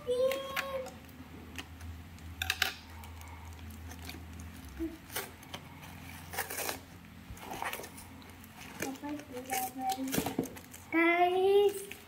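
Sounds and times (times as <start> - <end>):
cardboard parcel torn open: 3.8 - 10.8.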